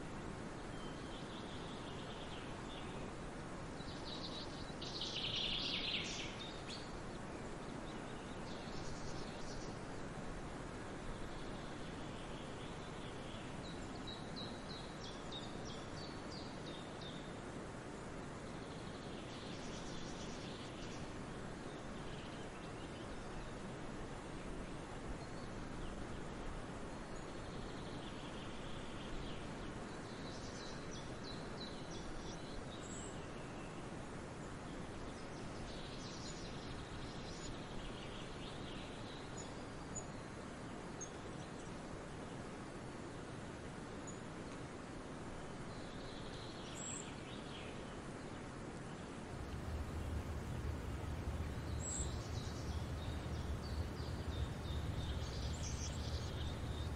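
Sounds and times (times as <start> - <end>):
outdoor background noise: 0.0 - 56.9
birds chirping: 49.3 - 56.9.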